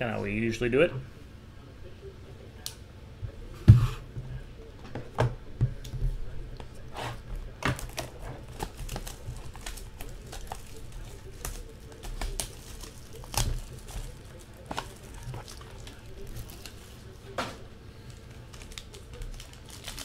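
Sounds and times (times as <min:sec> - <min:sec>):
shrink-wrap tearing and crinkling: 0:07.8 - 0:17.1, 0:18.1 - 0:20.0.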